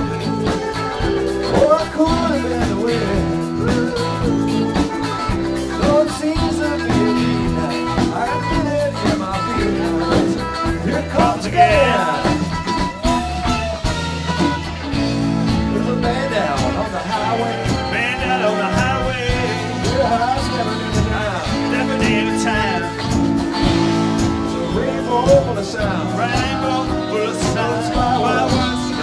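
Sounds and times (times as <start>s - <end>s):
electric guitar lead bending: 0.0s - 29.0s
rock band playing: 0.0s - 29.0s.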